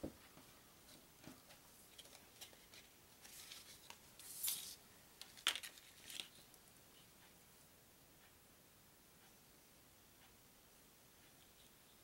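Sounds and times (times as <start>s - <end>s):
cards rustling and clicking: 1.9s - 6.5s.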